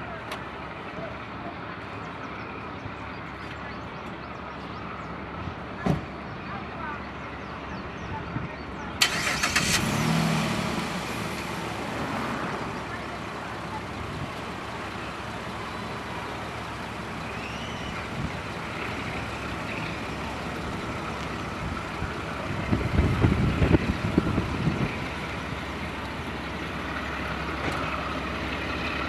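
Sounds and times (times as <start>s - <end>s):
diesel locomotive engine running: 0.0s - 29.0s
loud uneven low rumbling: 10.2s - 29.0s.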